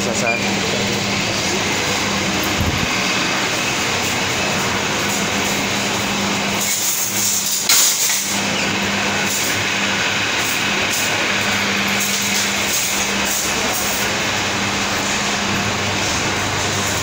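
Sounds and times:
steady low hum: 0.0s - 7.7s
cart rattling over tiled floor: 3.7s - 14.3s
shopping cart clanking: 3.7s - 17.0s.

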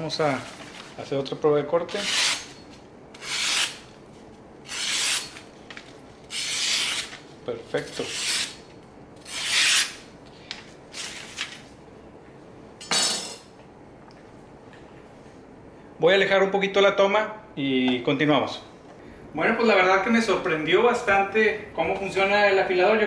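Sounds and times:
knife slicing paper: 3.2s - 3.9s, 6.3s - 7.2s, 9.2s - 10.0s.

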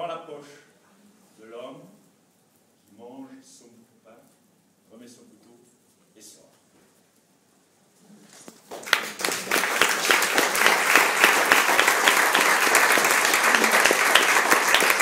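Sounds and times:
audience applauding: 8.6s - 15.0s.

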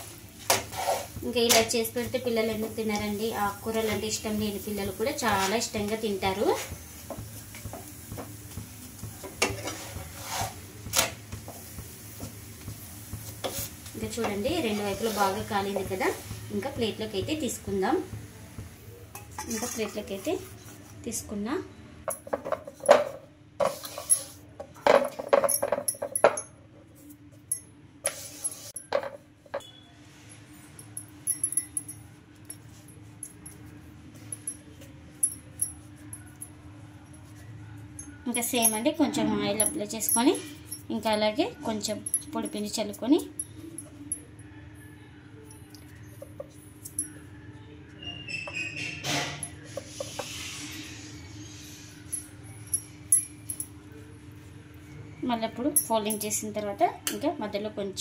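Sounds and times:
oil sizzling: 0.0s - 19.3s
spatula scraping flatbread in pan: 0.4s - 1.2s, 9.4s - 10.6s.

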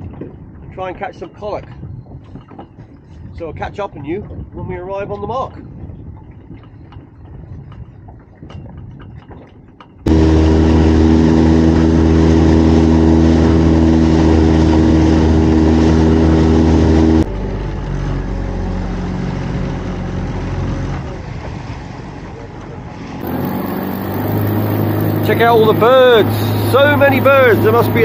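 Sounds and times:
boat engine droning: 9.9s - 28.0s
low engine hum: 10.0s - 28.0s.

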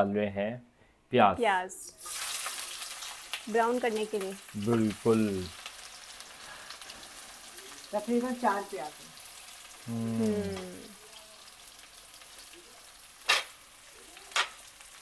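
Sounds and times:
onions sizzling in oil: 1.9s - 15.0s.

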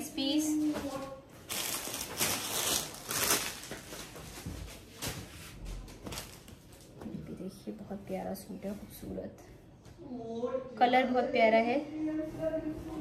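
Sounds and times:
fabric rustling: 0.6s - 7.2s.

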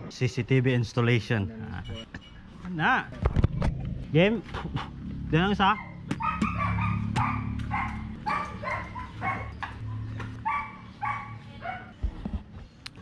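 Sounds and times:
dog barking: 5.6s - 9.7s, 10.4s - 12.0s.

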